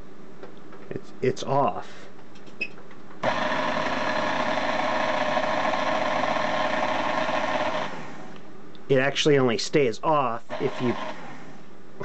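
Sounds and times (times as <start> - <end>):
mixer motor running: 3.2 - 8.4, 10.5 - 11.6.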